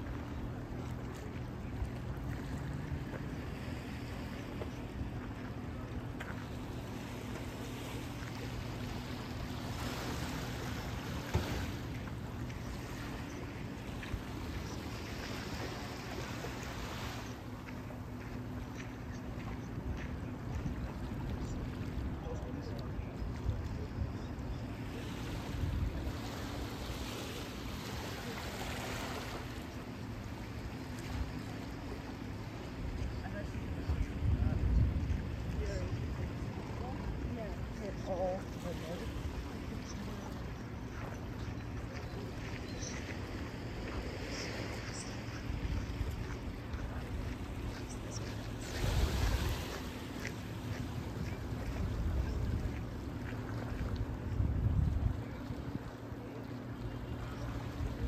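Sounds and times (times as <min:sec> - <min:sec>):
faint steady hum: 0:00.0 - 0:58.0
water noise: 0:00.0 - 0:58.0
wind: 0:00.0 - 0:58.0
rushing water wash: 0:43.3 - 0:58.0.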